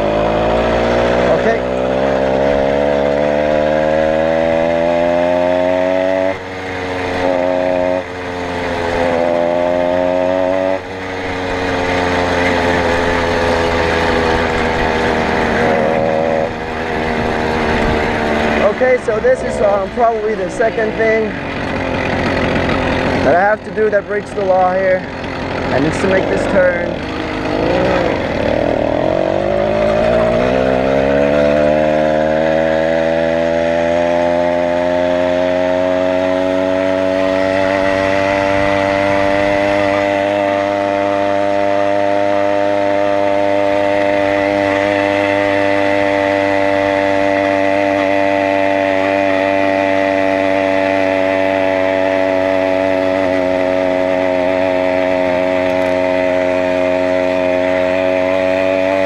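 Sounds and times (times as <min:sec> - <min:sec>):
small two-stroke engine: 0:00.0 - 0:59.0.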